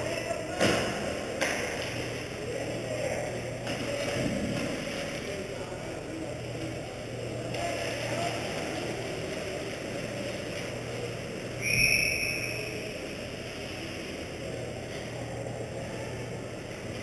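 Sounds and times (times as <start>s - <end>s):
ice rink hum and murmur: 0.0s - 17.0s
referee whistle blast: 11.6s - 12.9s.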